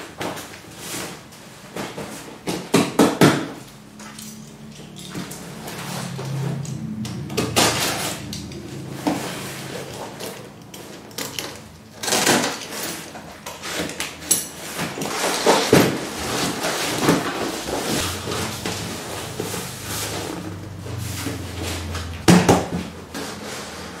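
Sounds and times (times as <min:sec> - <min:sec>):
cardboard scraping and rustling: 0:00.0 - 0:02.7, 0:07.5 - 0:24.0.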